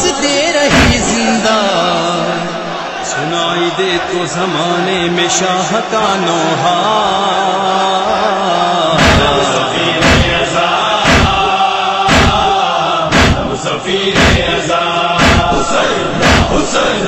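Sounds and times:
group chanting a lament: 0.0 - 17.0
chest-beating strikes: 0.7 - 1.2, 9.0 - 11.5, 12.1 - 14.6, 15.2 - 17.0.

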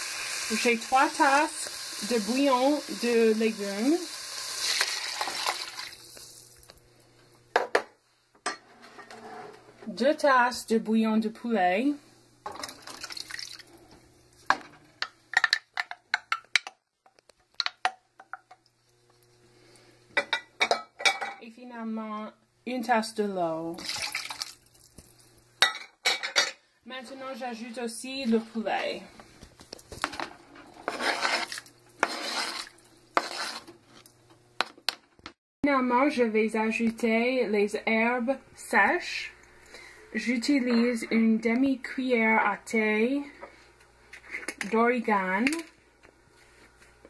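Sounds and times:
spatula scraping glass cup: 30.8 - 33.7.

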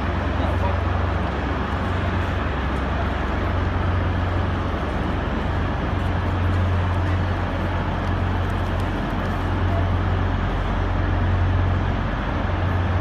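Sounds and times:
constant low hum: 0.0 - 13.0
crowd moving about: 0.0 - 13.0.

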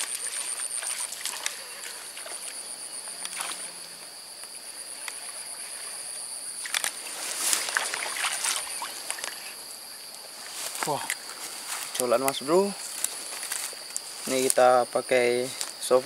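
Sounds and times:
insects droning: 0.0 - 16.0
lure splashing in water: 6.6 - 9.6.

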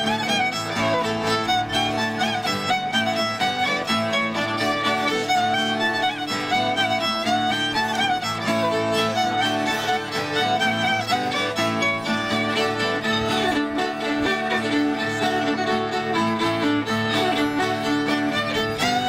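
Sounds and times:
fiddle playing folk dance tune: 0.0 - 19.0
instrumental accompaniment: 0.0 - 19.0.

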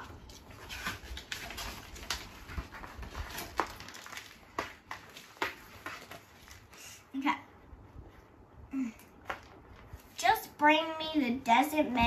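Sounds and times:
book pages being handled: 0.0 - 7.0
kittens playing on cardboard: 0.0 - 7.0.

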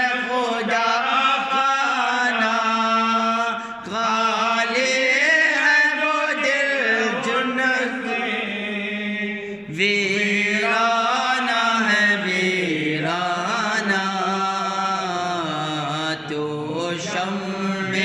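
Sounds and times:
man chanting: 0.0 - 18.0
short breath: 3.6 - 3.8.

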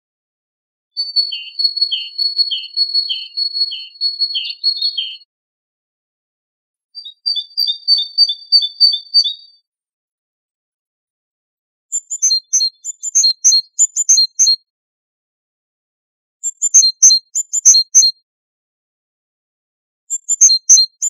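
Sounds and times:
great tit singing: 1.0 - 5.3, 7.0 - 9.6, 11.9 - 14.6, 16.4 - 18.1, 20.1 - 21.0.

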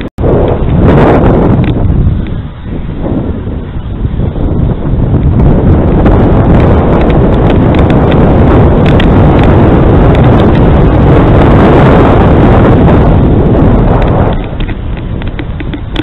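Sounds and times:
wind buffeting microphone: 0.0 - 16.0
bicycle rattling clicks: 1.6 - 2.9, 4.8 - 11.8, 13.1 - 16.0.

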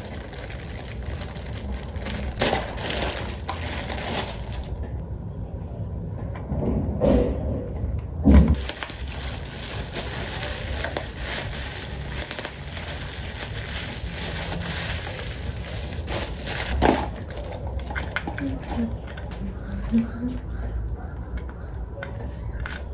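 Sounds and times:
bubble wrap popping: 0.0 - 4.8, 8.6 - 17.5
plastic packaging crinkling: 0.0 - 5.0, 8.6 - 18.2.

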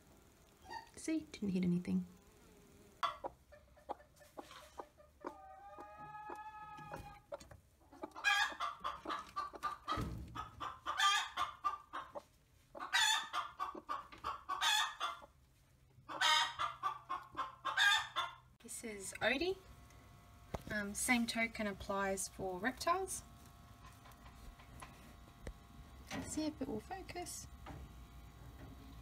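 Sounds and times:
chickens clucking: 3.0 - 18.6
hen long drawn-out call: 4.3 - 7.2.

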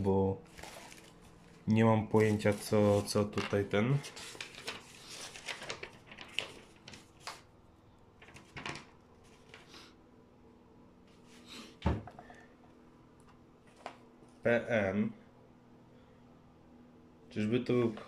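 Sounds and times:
paper rustling: 0.4 - 7.5, 8.2 - 9.8.

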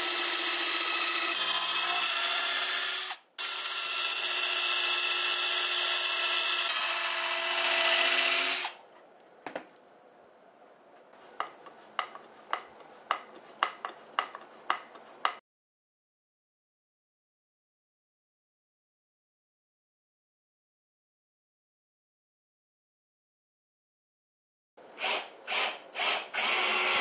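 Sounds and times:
cordless drill whining: 25.0 - 27.0.

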